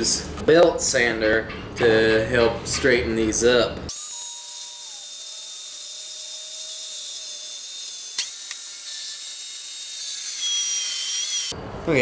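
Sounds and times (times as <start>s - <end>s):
belt sander whining: 3.9s - 11.6s.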